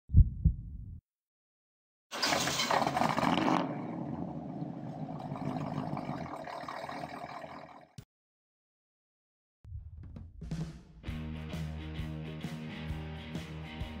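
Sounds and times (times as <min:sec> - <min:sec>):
low thumps: 0:00.1 - 0:01.0.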